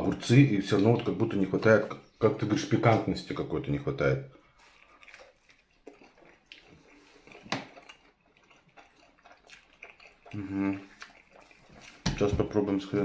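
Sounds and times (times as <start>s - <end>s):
wet mouth clicks from chewing: 0.0s - 3.1s, 4.4s - 12.7s
person humming: 10.4s - 10.9s.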